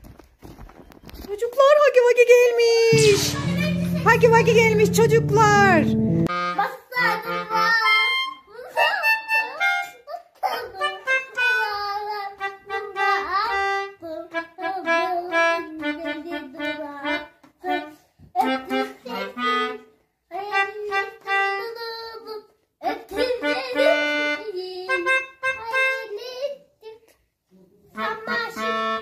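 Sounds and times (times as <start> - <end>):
melodica melody: 2.9 - 10.0, 10.8 - 11.8, 12.4 - 19.9, 23.4 - 26.2, 28.0 - 29.0.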